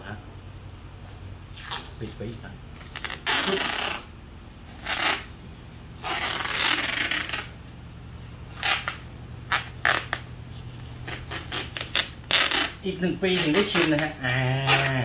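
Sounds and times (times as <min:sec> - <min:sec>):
tape crackling: 0:01.5 - 0:15.0
tape pulled off roll: 0:02.8 - 0:04.1, 0:08.6 - 0:12.8.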